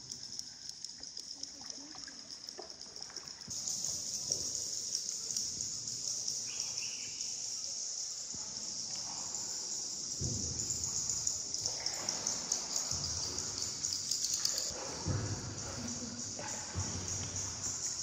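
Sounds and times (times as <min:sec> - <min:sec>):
insect chorus drone: 0:00.0 - 0:18.0.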